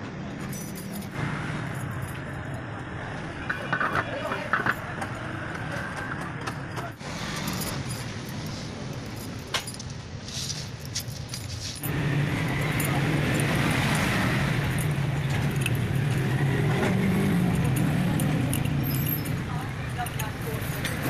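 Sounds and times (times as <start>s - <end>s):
wire spokes clinking and jangling: 0.4s - 2.6s, 7.3s - 21.0s.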